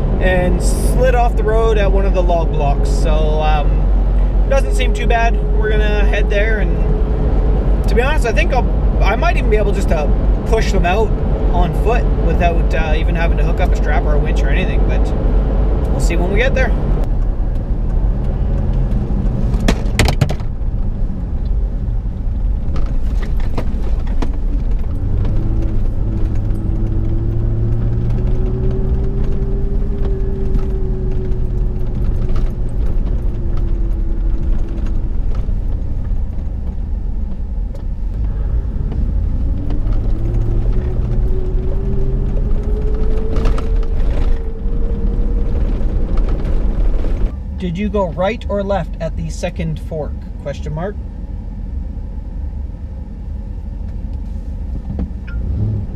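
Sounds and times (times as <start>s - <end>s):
truck engine and tyre rumble: 0.0s - 55.9s
knocks and rattles: 19.6s - 20.6s.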